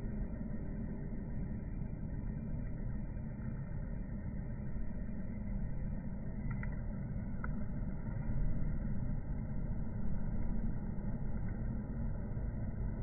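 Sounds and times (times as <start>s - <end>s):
low ambient rumble: 0.0s - 13.0s
faint ticks: 6.2s - 8.4s.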